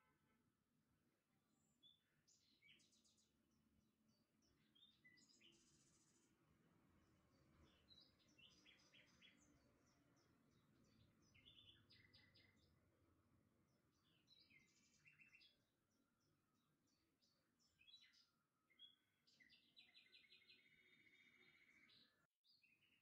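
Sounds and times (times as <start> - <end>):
faint birds chirping: 0.0 - 23.0.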